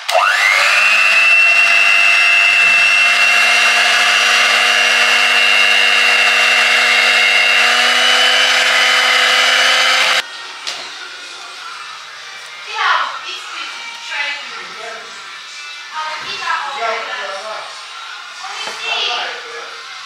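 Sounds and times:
electric hand mixer whining: 0.0s - 10.2s
beaters whisking batter: 0.6s - 10.2s.

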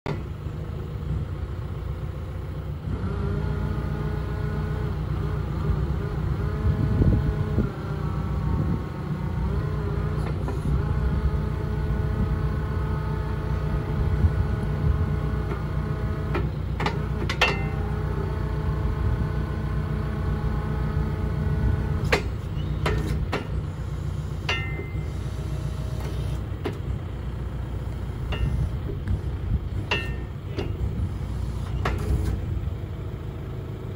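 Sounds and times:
diesel engine running: 0.1s - 33.9s
hydraulic whine: 2.8s - 32.7s
sharp metallic clunks: 16.3s - 18.0s, 22.0s - 23.6s, 24.4s - 25.3s, 28.2s - 29.2s, 29.8s - 30.9s.

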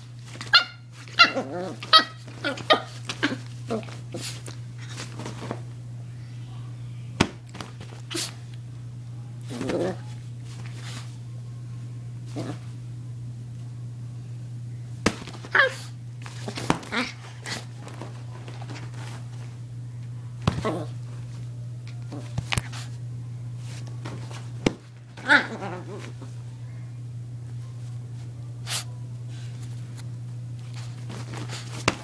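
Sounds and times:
dog yapping and snapping: 0.3s - 5.5s, 15.1s - 19.2s
small dog growling: 1.2s - 4.3s, 9.5s - 10.1s, 12.3s - 12.7s, 20.6s - 21.0s, 25.2s - 26.3s.

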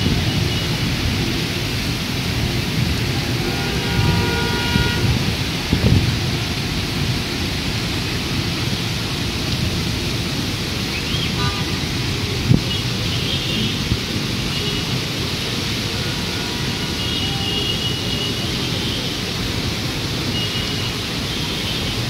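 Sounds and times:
heavy rain pouring: 0.0s - 22.0s
car horn: 3.2s - 5.3s.

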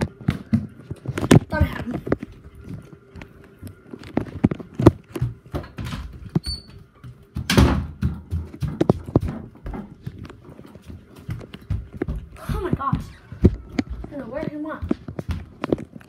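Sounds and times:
footsteps: 0.0s - 16.0s.

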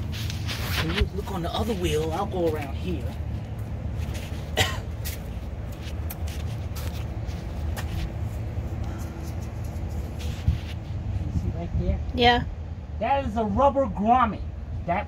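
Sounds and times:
footsteps on pavement: 0.0s - 11.2s
steady low rumble: 0.0s - 15.0s
person coughing: 4.6s - 4.9s.

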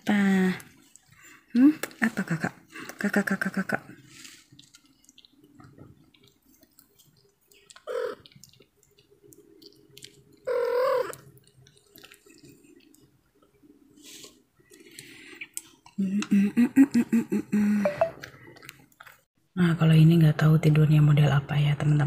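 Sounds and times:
kitten nibbling wet clicks: 4.5s - 13.1s
kitten mewing: 10.5s - 11.2s.

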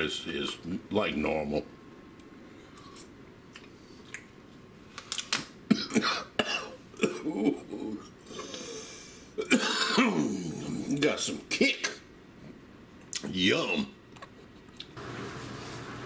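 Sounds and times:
faint breathy hiss: 8.2s - 9.4s.

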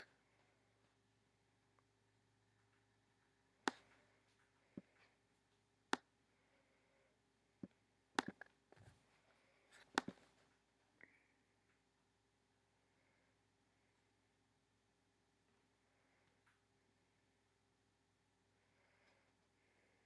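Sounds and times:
computer mouse clicking: 8.2s - 8.5s, 9.8s - 10.2s.

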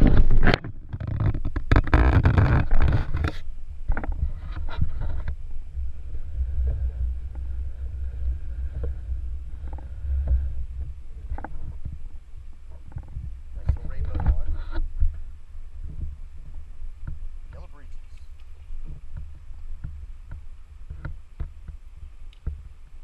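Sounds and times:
river water rumble: 0.0s - 23.0s
faint clicks: 17.0s - 22.7s.

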